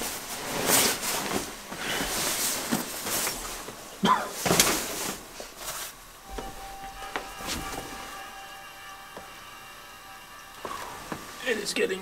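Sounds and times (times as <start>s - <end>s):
nylon bibs rustling: 0.0s - 6.1s.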